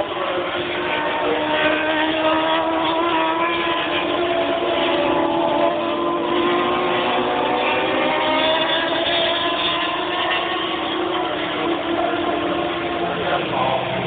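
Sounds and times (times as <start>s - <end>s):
racing motorcycle engines revving: 0.0s - 14.0s.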